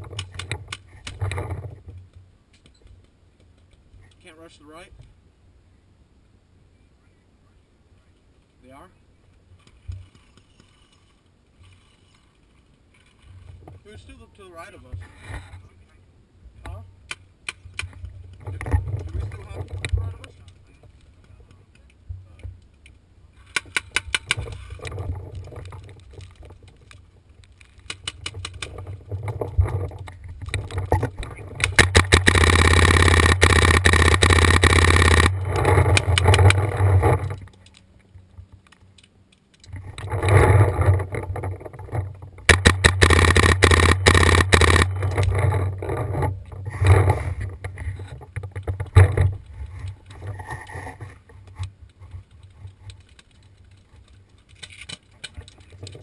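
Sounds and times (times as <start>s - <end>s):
paintball markers firing in bursts: 31.5s - 36.7s, 42.5s - 45.4s.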